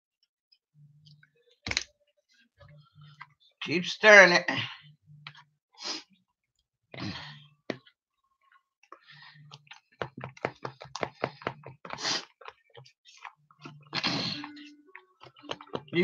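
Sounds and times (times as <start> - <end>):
utensil tapping plastic tub: 10.0 - 12.0.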